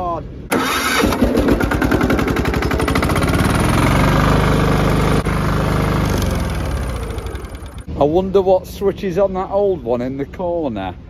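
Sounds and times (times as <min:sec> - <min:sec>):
small petrol engine running: 0:00.5 - 0:07.9.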